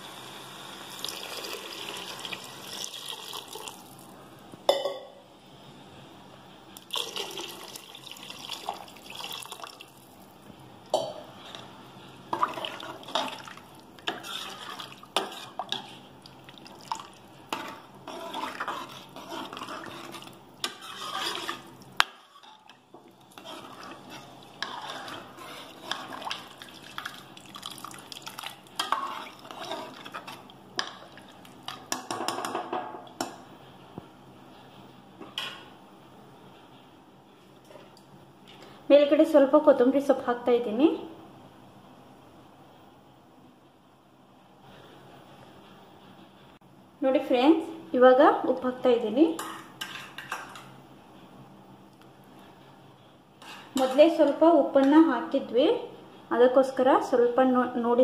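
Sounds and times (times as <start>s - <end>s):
liquid sloshing in a pot: 6.8s - 10.2s, 12.3s - 32.3s
ladle scraping and clinking on pot: 12.3s - 16.1s, 16.8s - 32.6s, 49.4s - 50.7s, 53.4s - 54.3s.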